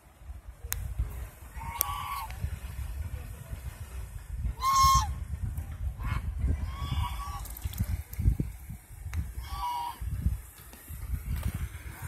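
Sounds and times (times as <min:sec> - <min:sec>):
low rumble: 0:00.0 - 0:12.0
goose honking: 0:04.6 - 0:05.1, 0:09.4 - 0:10.0.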